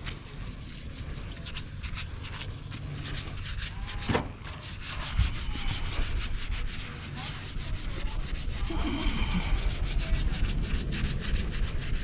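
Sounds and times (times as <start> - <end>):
sponge scrubbing metal panel: 0.0 - 12.0
low rumble: 4.6 - 12.0.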